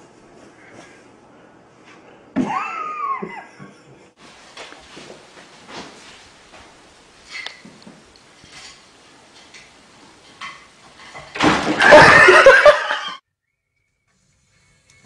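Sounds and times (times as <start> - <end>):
loud human laughter: 2.4 - 4.1, 11.8 - 13.2.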